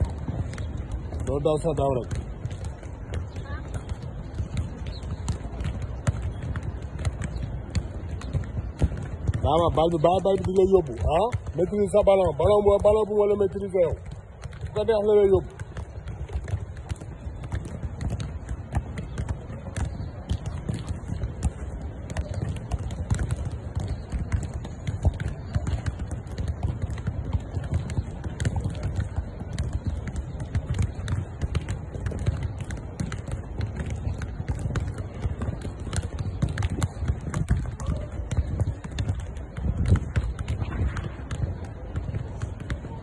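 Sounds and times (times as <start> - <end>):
footballs kicked and bouncing: 0.0 - 43.0.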